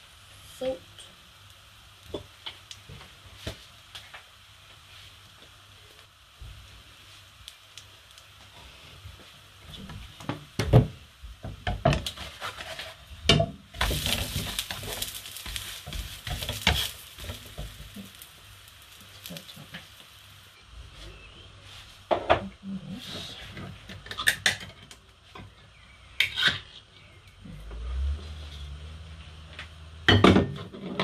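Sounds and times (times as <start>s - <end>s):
pancake sizzling in a pan: 0.0s - 31.0s
spatula scraping a pan: 11.8s - 13.2s, 13.8s - 18.2s, 26.2s - 26.8s.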